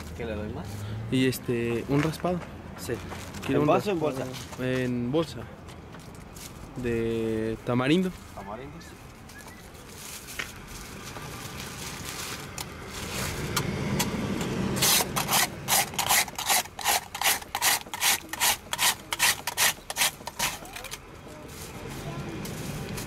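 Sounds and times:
plastic bag rustling: 6.0s - 13.5s
ice shaver rasping on ice: 14.8s - 20.9s.

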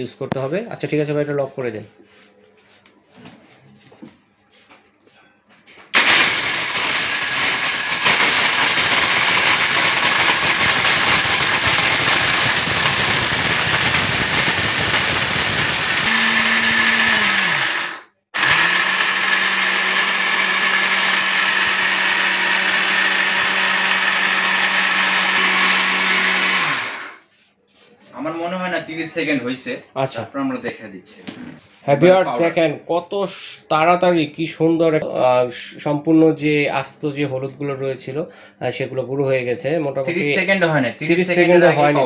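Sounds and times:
mixer grinder grinding spice: 6.0s - 27.3s.

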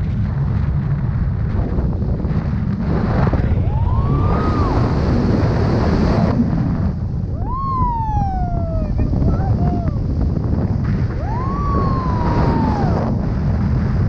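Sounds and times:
wind buffeting microphone: 0.0s - 14.0s
thin rising and falling tone: 7.3s - 10.0s, 11.2s - 13.2s.

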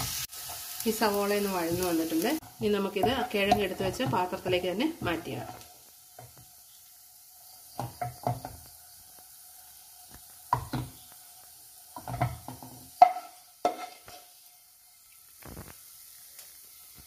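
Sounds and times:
faint sizzle: 0.0s - 17.0s
wooden spatula scraping frying pan: 1.6s - 6.5s, 11.9s - 14.4s.

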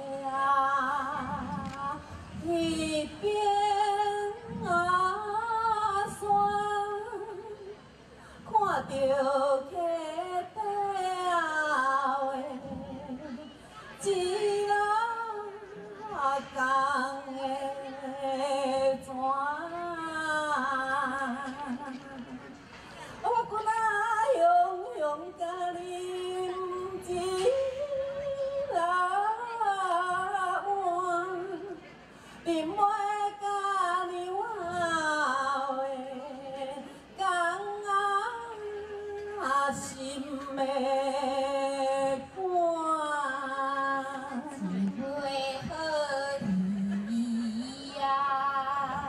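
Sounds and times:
woman singing through a microphone: 0.0s - 49.0s
singer breathing: 8.1s - 8.4s, 32.1s - 32.5s.

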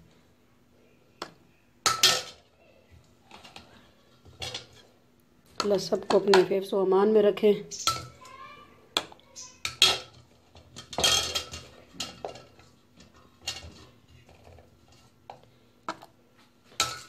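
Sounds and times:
dishes and utensils clinking: 1.9s - 2.4s, 9.6s - 15.1s, 16.8s - 17.0s.

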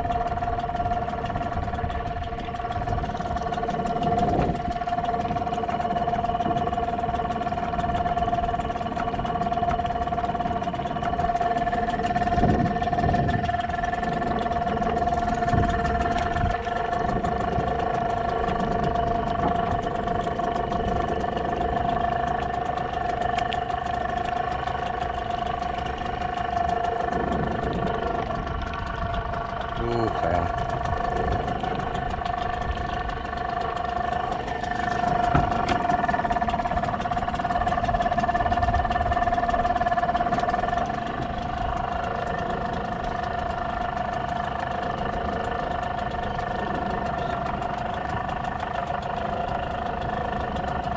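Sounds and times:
boat engine running: 0.0s - 50.9s.

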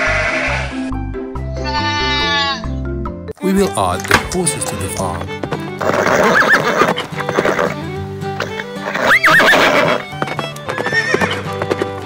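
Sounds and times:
horse neighing: 0.0s - 0.9s, 1.6s - 2.6s, 4.9s - 11.6s
background music: 0.0s - 12.0s.

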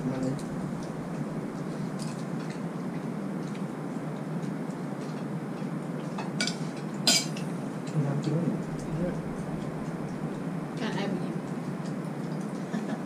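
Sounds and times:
low room noise: 0.0s - 13.0s
tableware clicking and clinking: 6.2s - 7.4s.

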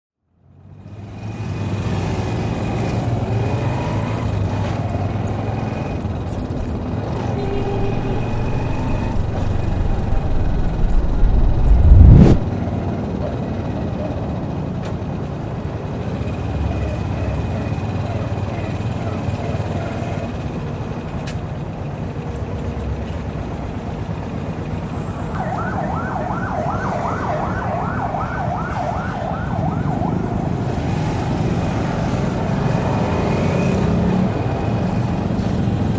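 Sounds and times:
engine and road rumble: 0.2s - 35.9s
deep rumble: 7.3s - 12.6s.

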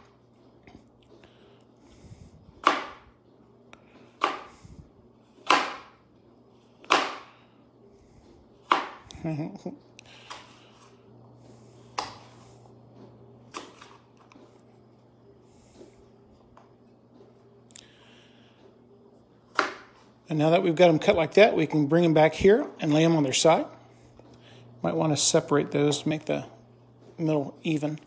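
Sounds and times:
knife chopping on plastic board: 2.6s - 3.0s, 4.1s - 4.6s, 5.3s - 6.0s, 6.8s - 7.4s, 8.6s - 9.1s, 11.9s - 12.4s, 19.5s - 20.0s.

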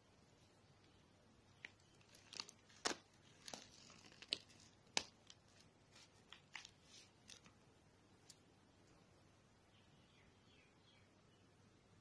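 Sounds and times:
paper and plastic crinkling: 1.6s - 7.6s.

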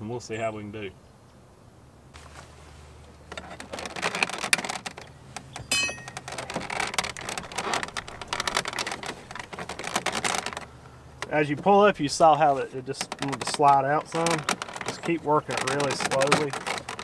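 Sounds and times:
plastic squeak: 3.3s - 10.7s, 12.8s - 17.0s.

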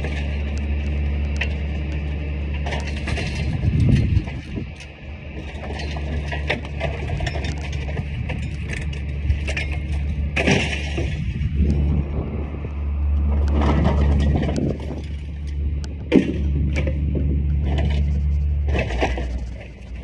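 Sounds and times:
low rumble: 0.0s - 20.0s
scrap metal clanking: 2.5s - 12.1s, 13.3s - 20.0s.

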